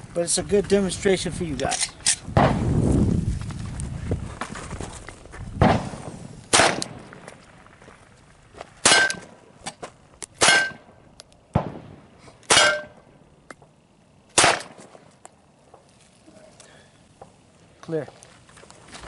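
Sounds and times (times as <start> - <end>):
pistol shots: 5.6 - 7.3, 8.8 - 9.4, 10.4 - 13.0, 14.4 - 15.0
metallic clang from steel plate: 12.5 - 13.0.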